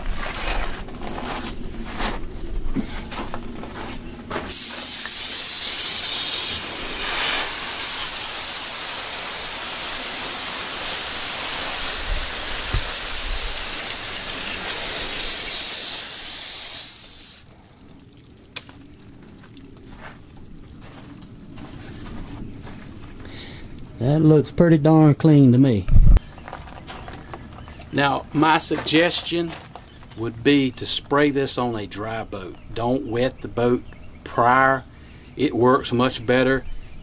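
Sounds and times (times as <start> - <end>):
water hose spraying on boat hull: 4.4 - 23.1.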